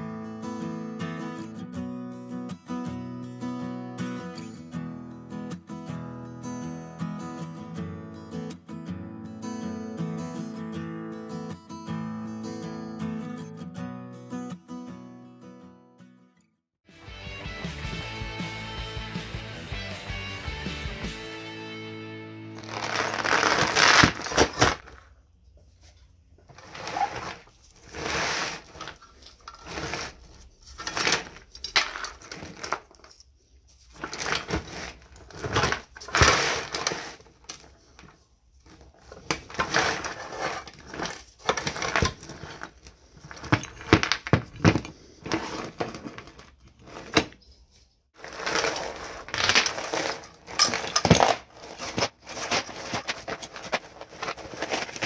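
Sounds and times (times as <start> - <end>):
chain rattling and clinking: 48.3 - 54.7.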